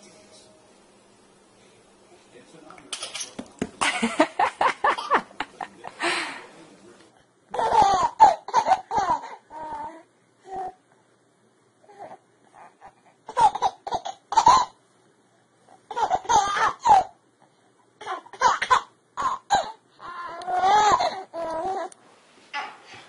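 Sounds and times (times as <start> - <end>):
baby laughing: 7.5 - 9.7, 12.7 - 14.8, 15.9 - 17.1, 18.0 - 21.9.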